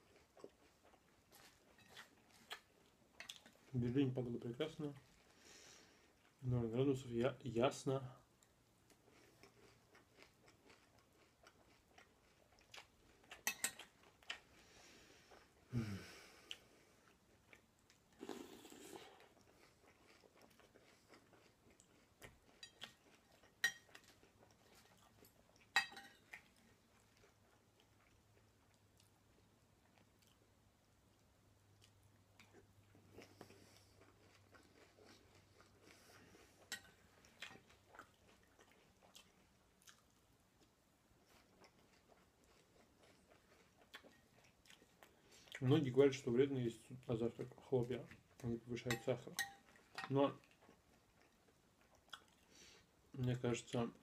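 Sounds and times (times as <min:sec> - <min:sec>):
chewing cereal: 0:00.0 - 0:07.1, 0:08.4 - 0:15.7, 0:16.4 - 0:54.0
spoon clinking against bowl: 0:48.9 - 0:49.6.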